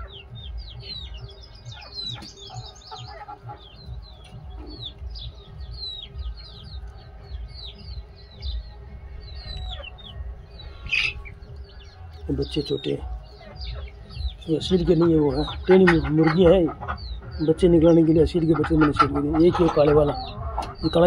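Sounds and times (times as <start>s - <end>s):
chicks peeping: 0.0s - 21.0s
low clucks: 14.7s - 21.0s.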